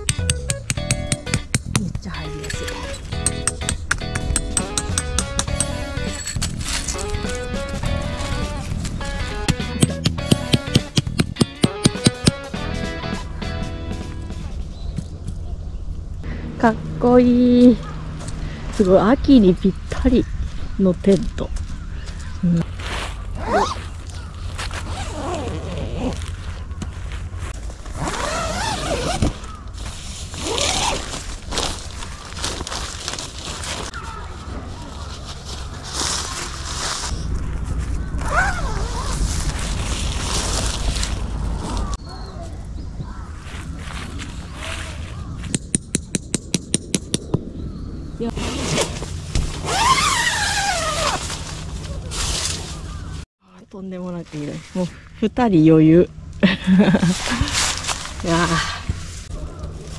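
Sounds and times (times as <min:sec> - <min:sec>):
steady low rumble: 0:00.8 - 0:11.4, 0:12.6 - 0:28.0, 0:29.6 - 0:49.8
tent fabric rustling scrape: 0:22.6 - 0:37.4, 0:38.2 - 0:42.0, 0:48.3 - 0:53.2, 0:57.0 - 0:59.9
crows cawing: 0:29.4 - 0:29.8.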